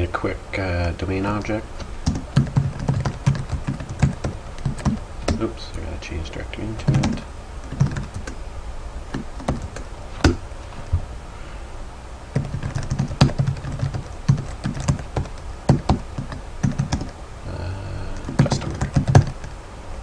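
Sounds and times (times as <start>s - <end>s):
keyboard typing: 1.8s - 5.5s, 6.8s - 8.4s, 9.1s - 10.4s, 12.3s - 17.2s, 18.1s - 19.5s.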